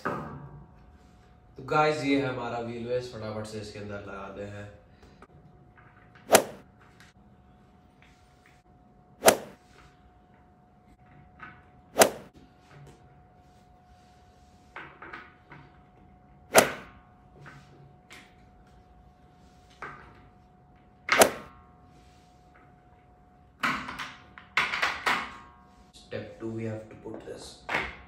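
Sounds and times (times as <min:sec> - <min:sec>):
caster wheel snapping into chair base: 0:16.6 - 0:16.9, 0:21.1 - 0:21.5.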